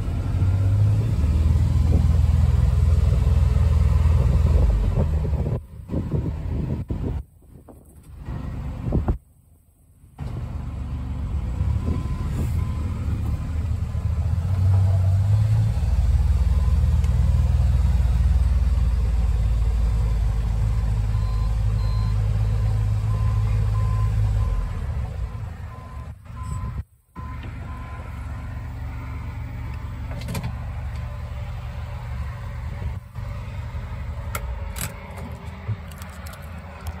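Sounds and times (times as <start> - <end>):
faint electronic beep: 25.7 - 29.3.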